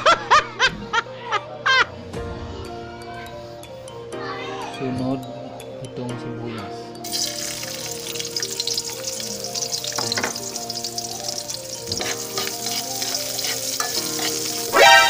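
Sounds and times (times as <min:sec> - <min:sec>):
onions sizzling in oil: 0:07.0 - 0:15.0.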